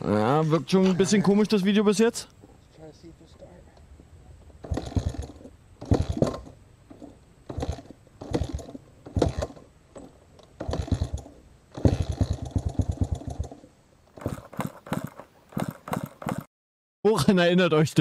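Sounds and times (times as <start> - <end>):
engine turning over chuffing: 4.6 - 9.7, 10.6 - 16.5
dirt bike kick-start: 4.6 - 16.5.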